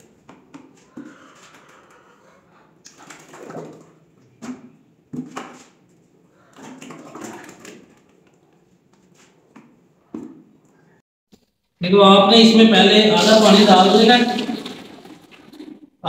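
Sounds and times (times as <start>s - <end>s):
plastic buckets knocking and scraping: 0.0s - 2.0s, 2.9s - 10.6s, 13.2s - 15.9s
thick paint pouring: 14.2s - 15.8s.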